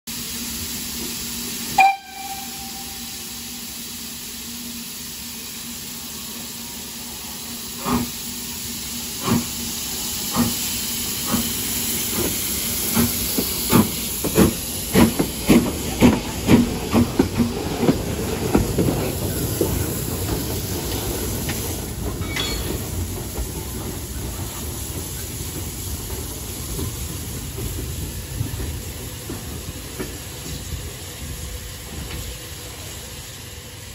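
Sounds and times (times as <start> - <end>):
steam hissing: 0.1 - 33.9
steam locomotive exhaust chuffs: 0.1 - 33.9
steam whistle blast: 1.7 - 3.4.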